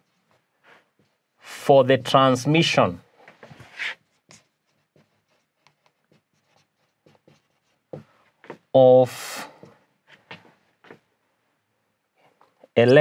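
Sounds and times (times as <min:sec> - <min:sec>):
marker pen writing on whiteboard: 0:00.0 - 0:01.4, 0:03.4 - 0:08.7.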